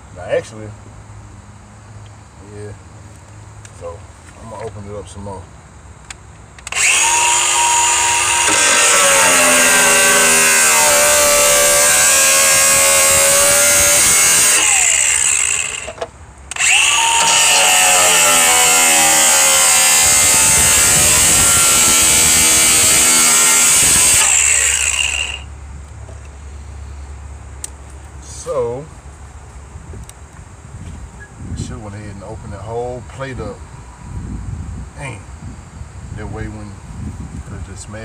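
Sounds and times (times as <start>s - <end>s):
angle grinder cutting sheet metal: 6.7s - 25.5s.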